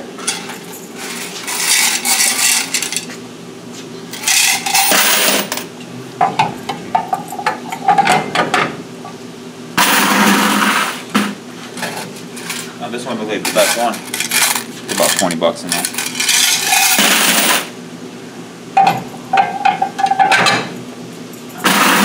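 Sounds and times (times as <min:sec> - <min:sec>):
coins rattling in metal box: 0:01.0 - 0:03.0, 0:04.2 - 0:05.6, 0:13.4 - 0:17.7.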